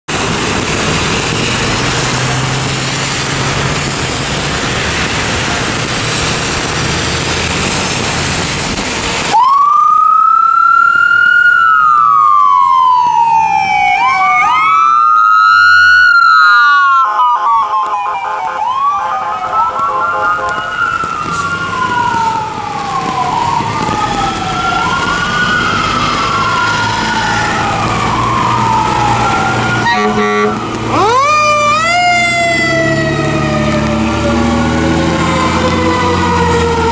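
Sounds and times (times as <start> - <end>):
steady rushing noise: 0.1 - 9.4
diesel engine humming: 0.1 - 9.6, 18.5 - 36.9
emergency sirens wailing: 0.1 - 36.9.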